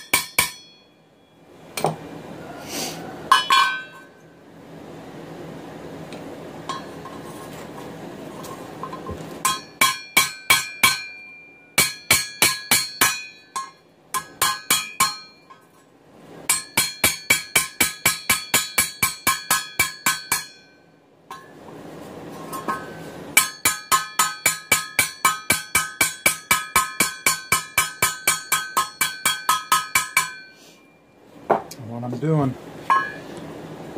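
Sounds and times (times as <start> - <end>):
hammer ringing on steel rivets: 0.0 - 1.2, 3.3 - 4.1, 8.9 - 15.7, 16.5 - 21.6, 22.7 - 30.6.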